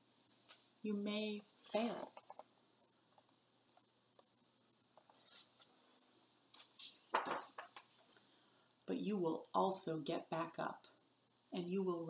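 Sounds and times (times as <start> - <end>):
paper rustling and sliding: 5.0 - 8.1
book pages flapping: 6.6 - 8.1.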